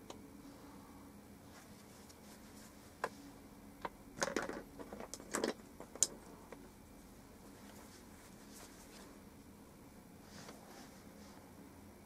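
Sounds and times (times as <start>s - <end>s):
small hard objects rattling: 4.2s - 6.2s.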